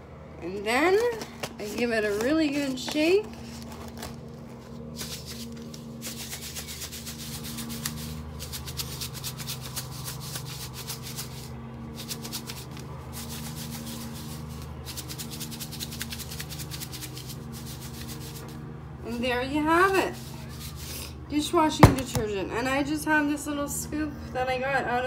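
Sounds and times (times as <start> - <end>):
powder shaken in plastic jar: 5.0 - 18.5.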